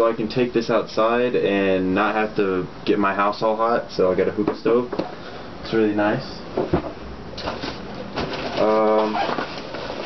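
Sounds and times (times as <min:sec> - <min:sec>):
hands rummaging through bubble wrap: 0:08.2 - 0:10.0.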